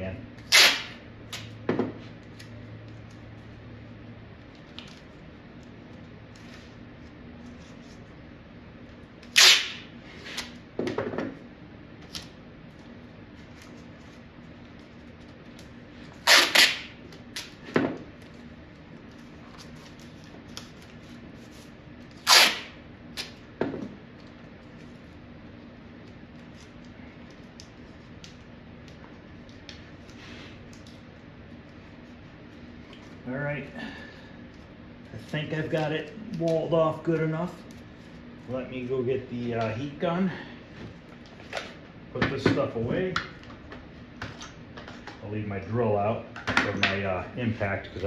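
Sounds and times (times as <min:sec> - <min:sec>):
masking tape ripping off roll: 0:00.4 - 0:01.5, 0:09.2 - 0:10.6, 0:16.1 - 0:17.6, 0:19.6 - 0:23.4.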